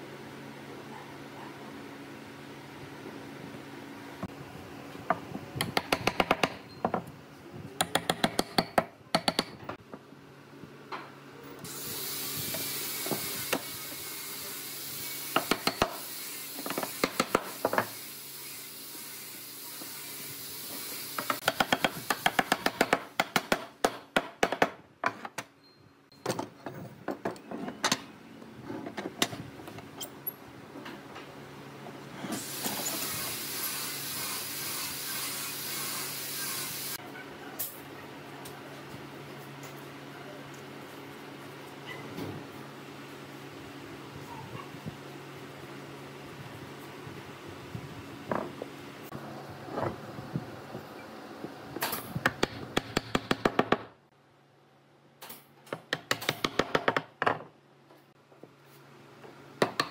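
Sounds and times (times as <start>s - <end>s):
sharp wooden knocks and clicks: 5.6s - 7.0s, 55.7s - 57.4s.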